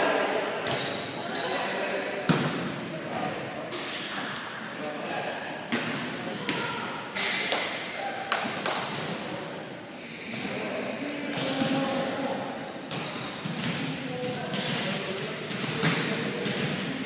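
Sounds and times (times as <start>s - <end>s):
volleyball smacks echoing: 2.3s - 2.8s.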